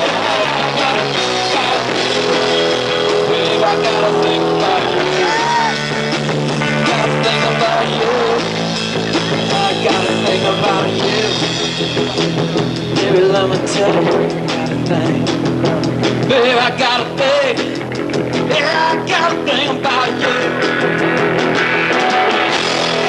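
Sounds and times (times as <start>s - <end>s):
electric guitar bending notes: 0.0s - 23.0s
rock band playing: 0.0s - 23.0s.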